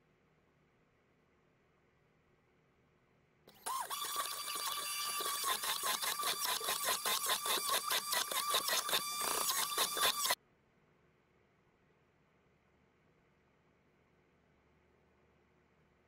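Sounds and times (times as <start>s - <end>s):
electric blender whining: 3.5s - 10.4s.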